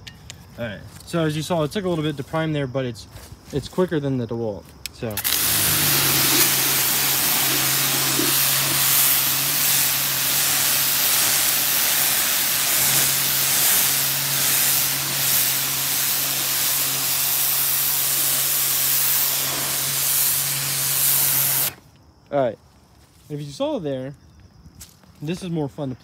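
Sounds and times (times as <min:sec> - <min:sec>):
water spray hissing: 0:05.1 - 0:21.8
pump motor humming: 0:05.2 - 0:21.8.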